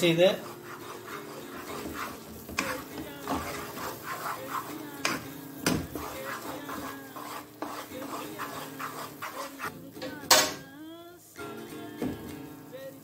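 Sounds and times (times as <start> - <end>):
wooden spoon scraping a pan: 0.0 - 9.7.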